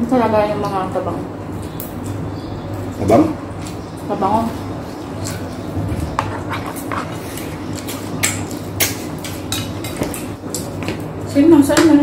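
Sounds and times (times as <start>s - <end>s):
steady low hum: 0.0s - 12.0s
chewing and lip smacks: 1.6s - 11.1s.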